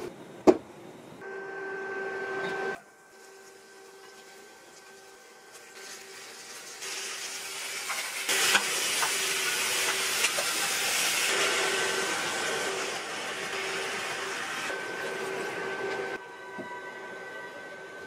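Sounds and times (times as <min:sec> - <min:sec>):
vegetables sizzling in hot oil: 0:03.1 - 0:14.7.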